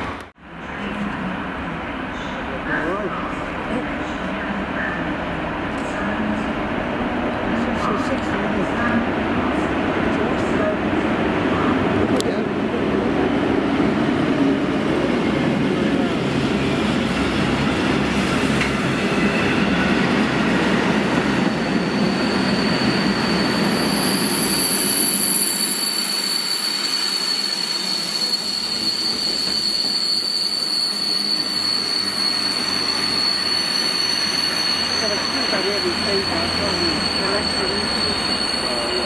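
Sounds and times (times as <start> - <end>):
train wheels rumbling on rail: 5.3 - 39.0
high-pitched wheel squeal: 21.3 - 39.0.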